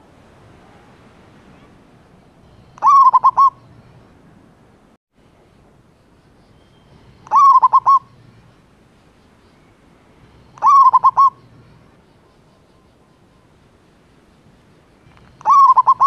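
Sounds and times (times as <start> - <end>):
dove cooing: 2.6 - 3.7, 7.2 - 8.2, 10.3 - 11.8, 15.2 - 16.0.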